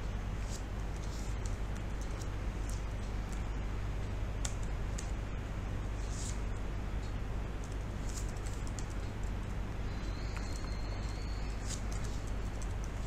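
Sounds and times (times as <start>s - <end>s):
low electrical hum and hiss: 0.0s - 13.0s.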